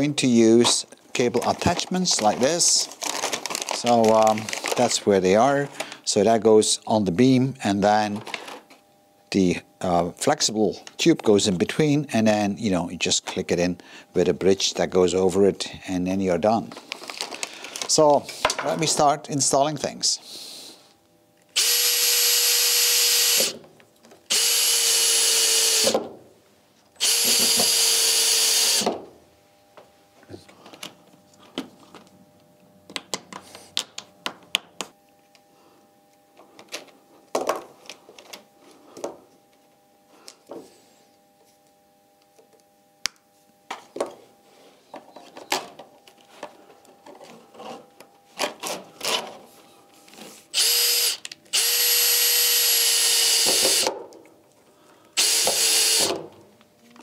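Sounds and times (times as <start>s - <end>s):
cordless drill driving screws: 21.6s - 23.6s, 24.3s - 26.0s, 27.0s - 28.9s, 50.6s - 53.9s, 55.2s - 56.1s.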